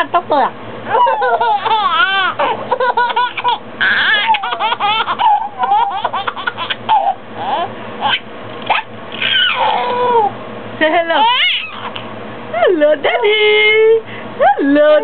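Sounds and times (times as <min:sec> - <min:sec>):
baby laughing: 0:00.9 - 0:10.3, 0:11.1 - 0:12.0.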